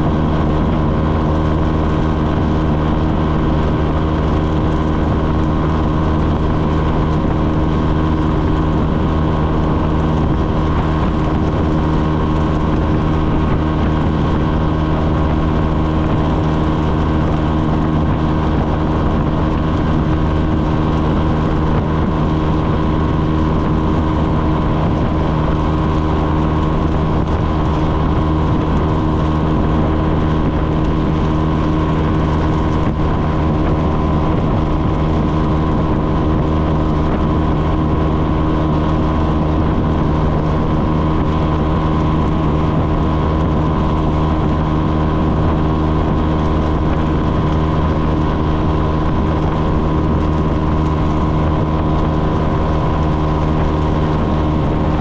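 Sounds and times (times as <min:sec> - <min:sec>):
motorcycle engine droning: 0:00.0 - 0:55.0.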